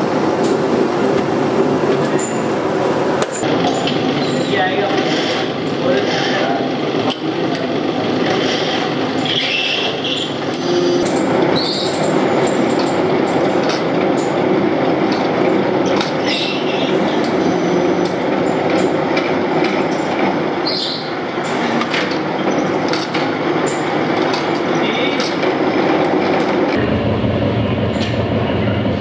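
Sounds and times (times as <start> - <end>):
drill press running: 0.0 - 29.0
drill bit squealing on metal: 3.7 - 6.7, 8.2 - 12.8, 16.2 - 18.2, 20.0 - 21.8.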